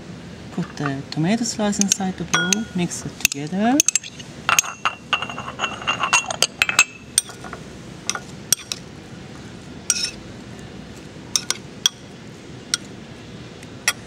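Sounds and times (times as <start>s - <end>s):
metal spoon clinking on ceramic bowl: 1.8s - 2.8s, 11.4s - 12.0s.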